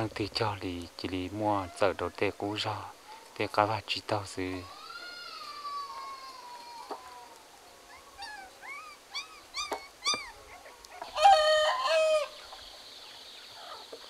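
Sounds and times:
short chirping calls: 0:07.9 - 0:10.6
rooster crowing: 0:11.0 - 0:12.4.

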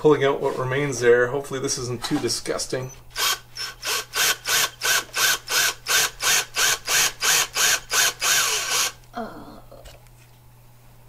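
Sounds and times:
power drill pulsing: 0:03.1 - 0:09.0.

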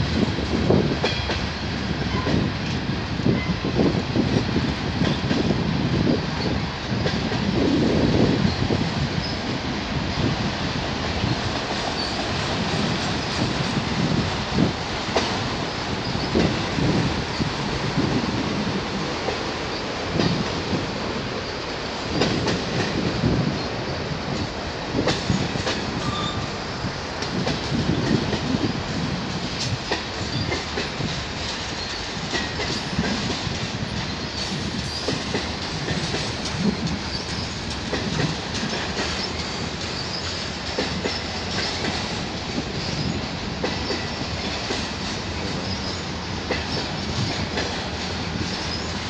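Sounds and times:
train wheels rumbling on rails: 0:00.0 - 0:49.0
wheels clicking over rail joints: 0:27.2 - 0:49.0.

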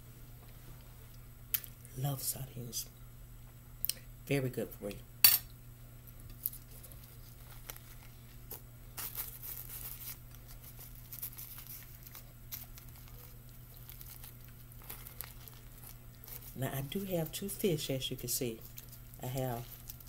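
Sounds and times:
low steady hum: 0:00.0 - 0:20.0
seaweed sheet crinkling: 0:06.4 - 0:20.0.

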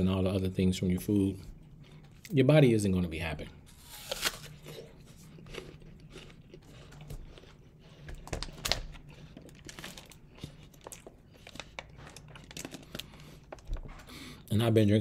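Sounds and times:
apple crunching while chewed: 0:03.7 - 0:14.0.

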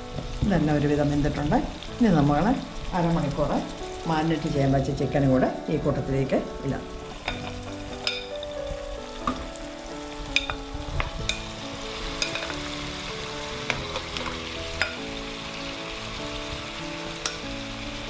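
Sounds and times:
chicken sizzling in pan: 0:06.9 - 0:18.0
fork and spoon clinking: 0:07.2 - 0:08.3, 0:12.2 - 0:12.6.

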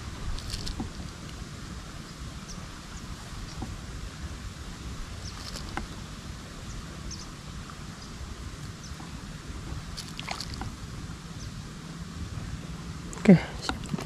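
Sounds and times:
low steady rumble: 0:00.0 - 0:14.0
birds chirping: 0:06.6 - 0:07.4, 0:08.8 - 0:09.2, 0:11.4 - 0:11.6.

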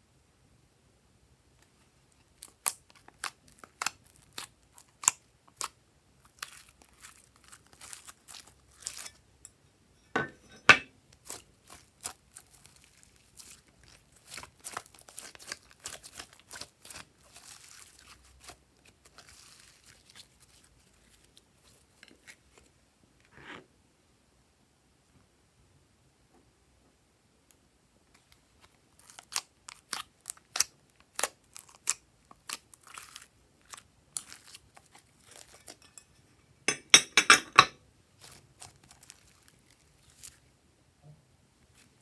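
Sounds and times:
slime squishing: 0:02.3 - 0:09.1, 0:11.2 - 0:22.6, 0:28.6 - 0:35.8, 0:38.2 - 0:40.4.

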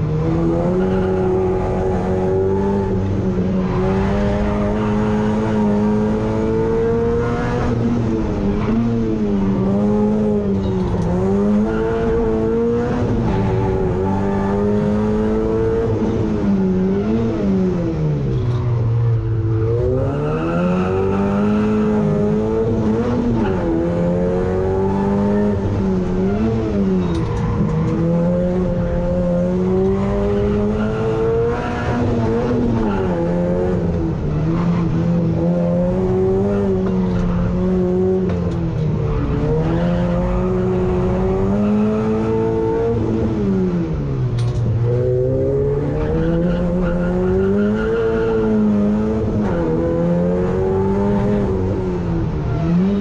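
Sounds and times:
race car engine revving: 0:00.0 - 0:53.0.

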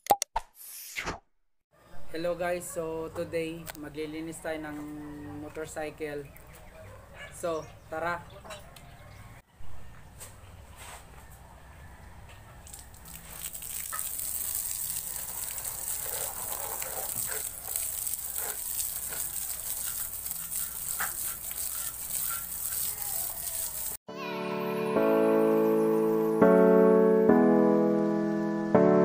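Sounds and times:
water spray hissing: 0:12.7 - 0:24.0
piano music: 0:24.1 - 0:29.0.

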